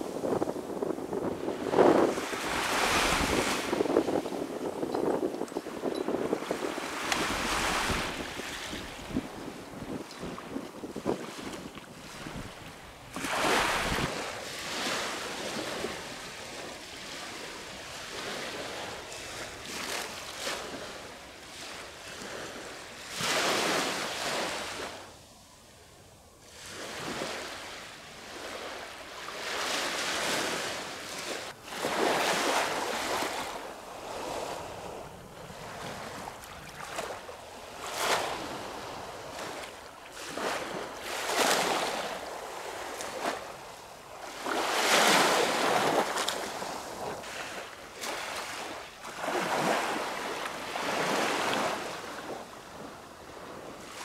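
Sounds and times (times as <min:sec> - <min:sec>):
sea waves washing in: 0:00.0 - 0:25.2.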